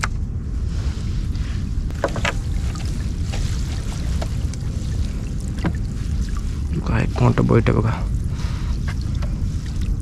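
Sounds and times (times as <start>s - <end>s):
water around hull: 0.0s - 10.0s
wind on microphone: 0.0s - 10.0s
water splashing and dripping: 1.9s - 7.0s, 8.8s - 10.0s.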